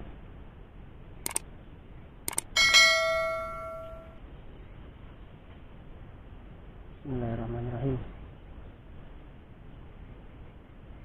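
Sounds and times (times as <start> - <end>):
bell-like chime: 2.6 - 4.2.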